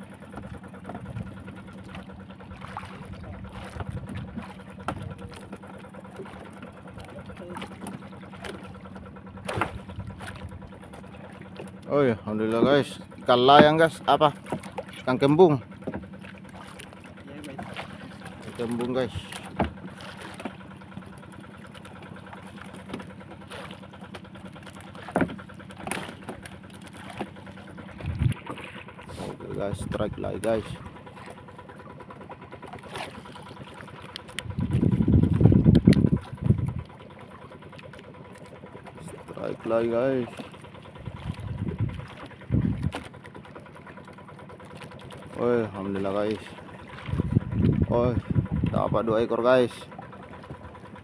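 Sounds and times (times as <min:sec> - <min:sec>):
boat motor humming: 0:00.0 - 0:51.0
small engine idling: 0:00.0 - 0:51.0
water washing against hull: 0:00.0 - 0:51.0
small knocks and splashes: 0:00.2 - 0:29.4, 0:30.4 - 0:48.8
knocks on a boat: 0:13.4 - 0:16.3, 0:17.5 - 0:20.6, 0:25.0 - 0:28.7.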